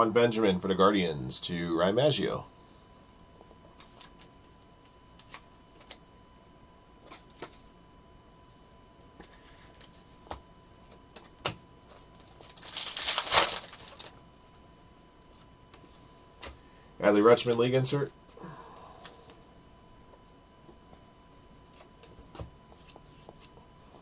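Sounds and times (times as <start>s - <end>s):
cards rustling: 11.9s - 14.2s.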